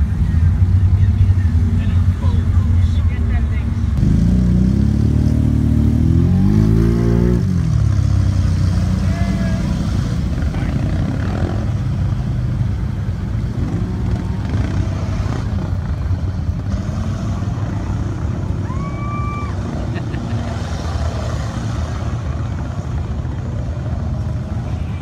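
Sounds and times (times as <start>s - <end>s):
other off-road engines: 0.0s - 25.0s
vehicle engine running: 0.0s - 25.0s.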